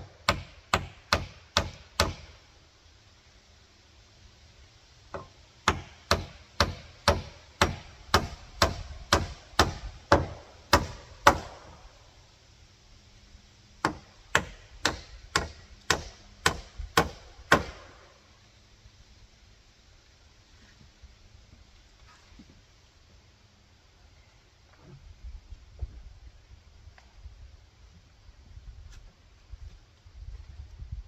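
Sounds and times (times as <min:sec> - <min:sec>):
hammer driving nails into wood: 0:05.2 - 0:11.7.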